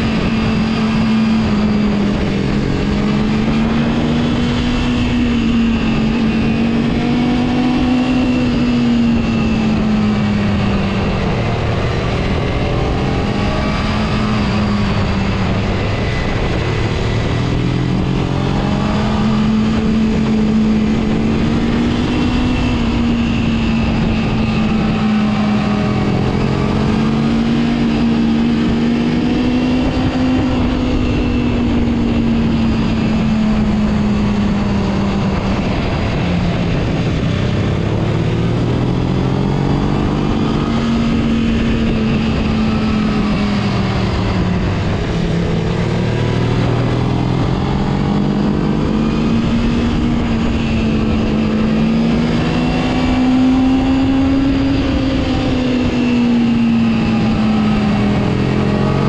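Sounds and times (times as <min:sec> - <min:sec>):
motorcycle engine revving: 0:00.0 - 0:59.0
wind and road noise: 0:00.0 - 0:59.0.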